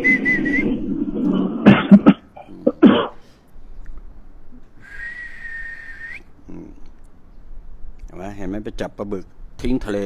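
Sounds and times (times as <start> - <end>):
high whistling tone rising: 0.0 - 1.4, 4.8 - 6.3.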